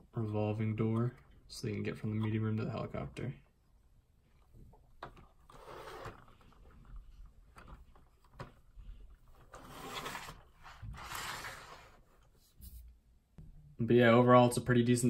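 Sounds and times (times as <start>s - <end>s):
plastic bricks scraping on wood: 9.5s - 12.0s.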